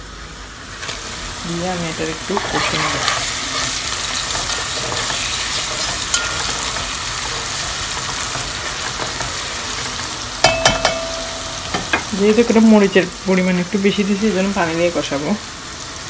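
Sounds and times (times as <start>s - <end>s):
vegetables sizzling in hot oil: 0.0s - 16.0s
spatula stirring in pot: 2.3s - 11.0s.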